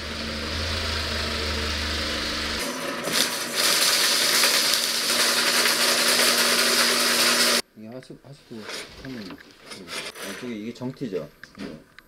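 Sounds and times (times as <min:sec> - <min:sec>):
vehicle engine idling: 0:00.0 - 0:02.6
drain-cleaning machine motor hum: 0:00.0 - 0:07.6.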